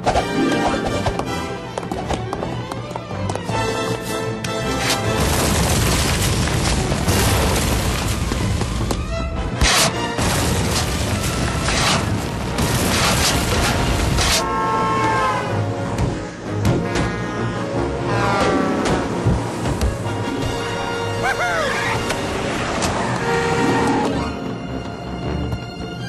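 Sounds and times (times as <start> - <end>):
demolition explosion and collapse: 4.8 - 14.4.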